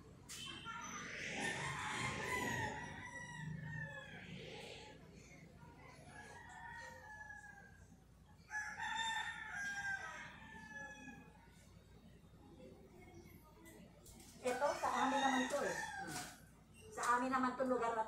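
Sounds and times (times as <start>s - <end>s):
rooster crowing: 1.4s - 4.6s, 8.4s - 11.3s, 14.5s - 16.4s.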